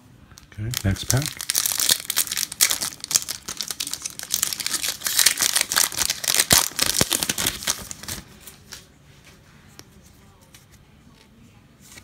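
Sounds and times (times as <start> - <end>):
foil wrapper crinkling: 0.6 - 8.8.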